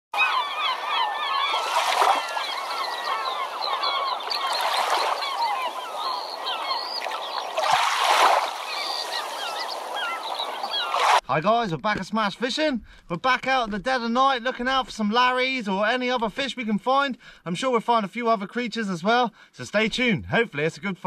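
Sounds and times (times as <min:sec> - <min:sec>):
many birds calling: 0:00.2 - 0:11.2
waves washing in: 0:01.4 - 0:11.2.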